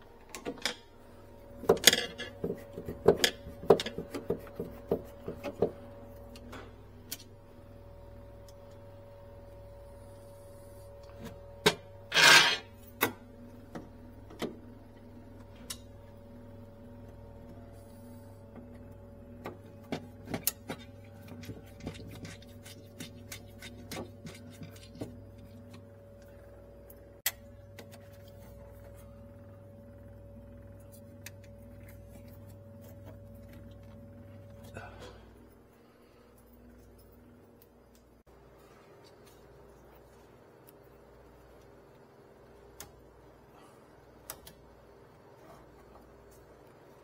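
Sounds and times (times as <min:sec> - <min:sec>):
electrical hum: 0:00.0 - 0:47.0
harsh metal scrape: 0:12.1 - 0:12.7.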